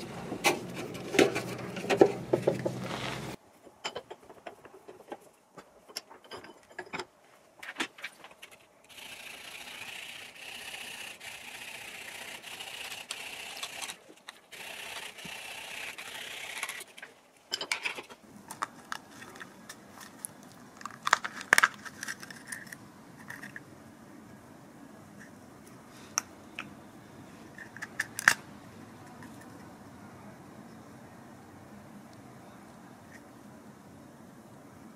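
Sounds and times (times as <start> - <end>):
hacksaw sawing plastic: 8.9 - 17.1.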